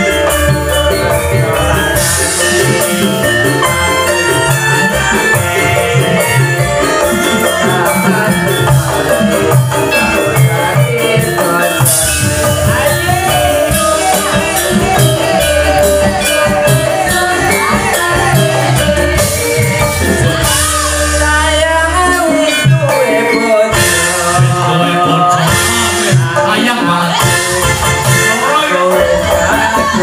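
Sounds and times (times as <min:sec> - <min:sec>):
amplified singing: 0:00.0 - 0:30.0
drum strokes: 0:00.0 - 0:30.0
gamelan ensemble playing: 0:00.0 - 0:30.0.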